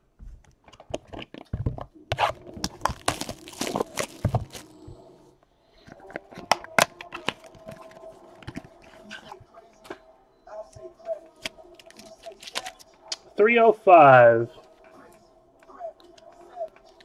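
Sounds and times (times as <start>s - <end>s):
cellophane wrapper crinkling: 2.2s - 4.8s, 11.4s - 13.1s
cards clicking and tapping: 5.9s - 8.7s.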